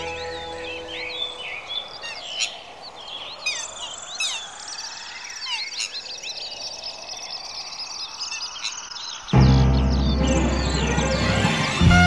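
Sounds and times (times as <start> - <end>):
songbirds chirping and twittering: 0.0 - 12.0.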